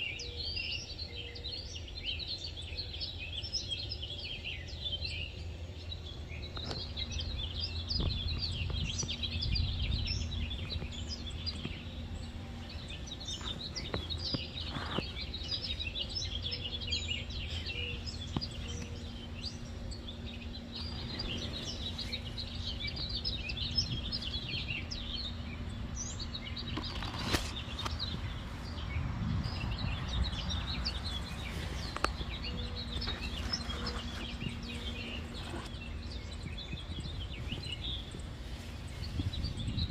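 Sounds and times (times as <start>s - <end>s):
birds chirping: 0.0s - 39.9s.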